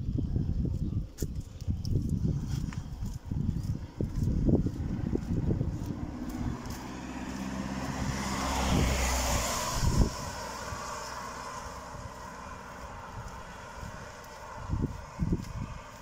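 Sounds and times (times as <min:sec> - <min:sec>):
car passing on wet road: 0:04.8 - 0:16.0.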